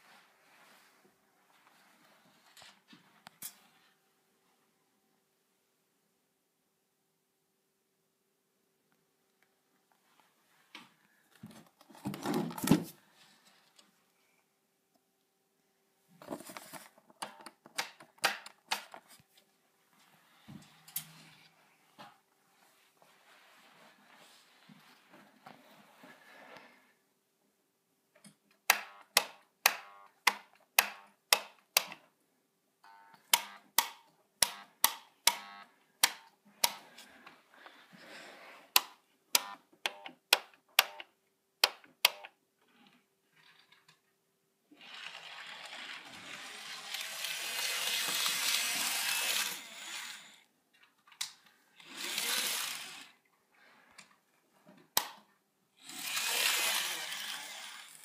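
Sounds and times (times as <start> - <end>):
model train motor whirring: 44.8 - 50.4, 51.8 - 53.2, 55.8 - 58.0.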